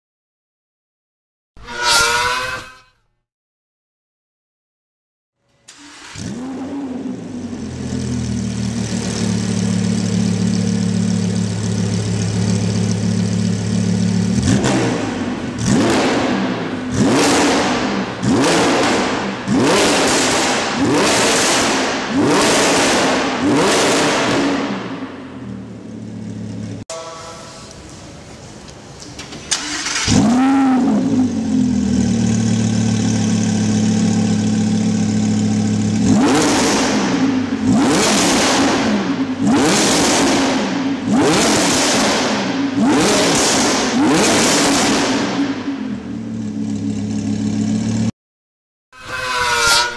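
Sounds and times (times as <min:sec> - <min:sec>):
engine revving: 0:05.7 - 0:10.1, 0:13.6 - 0:26.8, 0:29.6 - 0:48.1
sports car engine idling: 0:07.0 - 0:14.6, 0:25.1 - 0:26.8, 0:31.0 - 0:36.1, 0:45.8 - 0:48.1.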